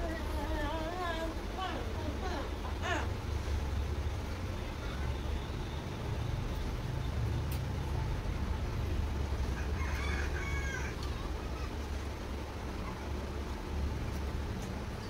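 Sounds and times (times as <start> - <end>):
rooster crowing: 9.4 - 11.1.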